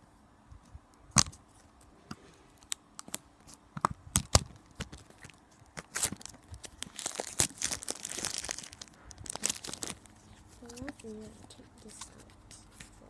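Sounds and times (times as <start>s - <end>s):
plastic wrap clicking and crackling: 3.8s - 13.0s
plastic film crinkling and tearing: 4.2s - 13.0s.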